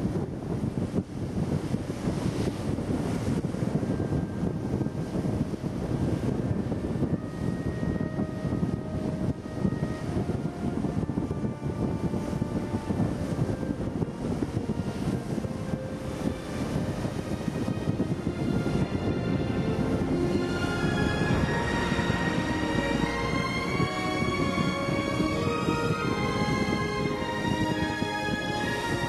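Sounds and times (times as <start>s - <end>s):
wind buffeting microphone: 0.0s - 29.0s
faint thin steady tones: 0.8s - 20.1s.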